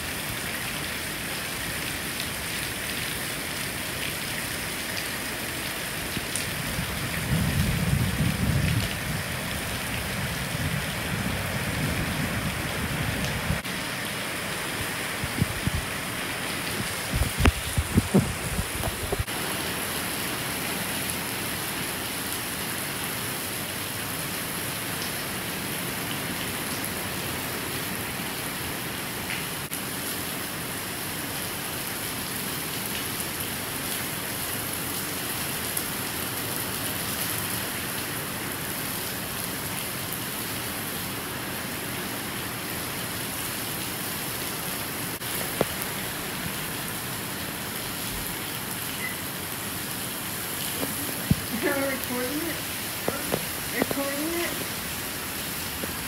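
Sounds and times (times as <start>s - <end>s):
heavy rain hissing: 0.0s - 56.0s
wind gusts rumbling: 6.5s - 13.6s, 14.7s - 16.0s, 16.6s - 19.3s.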